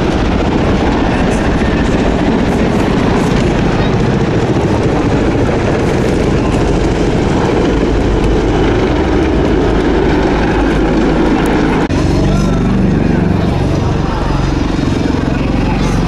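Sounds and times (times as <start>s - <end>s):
helicopter rotors chopping: 0.0s - 16.0s.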